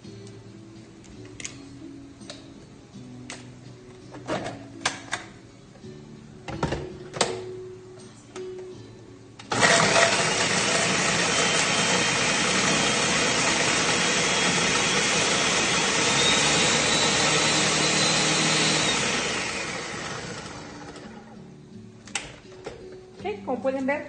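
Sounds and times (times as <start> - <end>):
blender motor grinding: 9.5 - 21.4.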